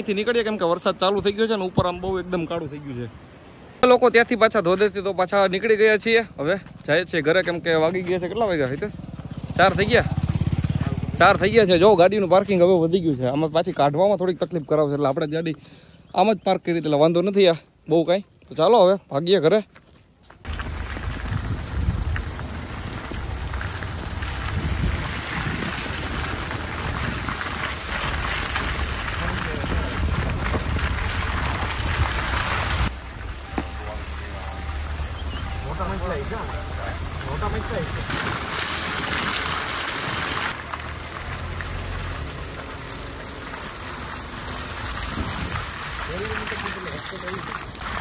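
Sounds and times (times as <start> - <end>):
low car rumble: 7.7 - 13.2, 20.5 - 48.0
tyres rolling over wet gravel: 20.4 - 48.0
rain: 20.5 - 48.0.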